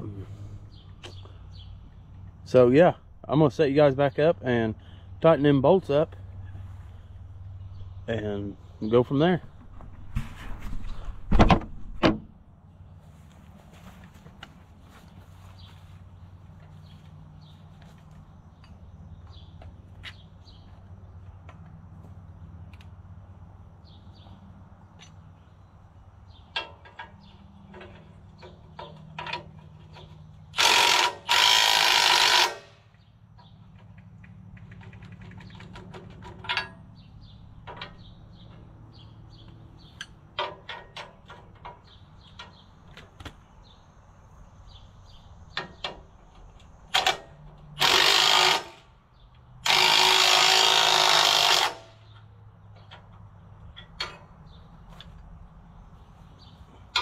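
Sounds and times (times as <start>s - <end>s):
tools clanking on metal: 26.3s - 31.4s, 33.4s - 39.1s, 39.8s - 43.2s, 49.6s - 55.3s, 56.8s - 57.0s
power tool tightening bolts: 26.6s - 32.8s, 46.9s - 48.9s, 49.6s - 53.1s.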